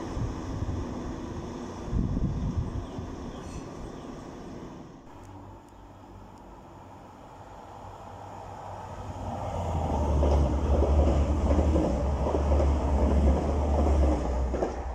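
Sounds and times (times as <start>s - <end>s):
diesel train engine drone: 0.0s - 14.9s
train wheel rumble: 6.6s - 14.9s.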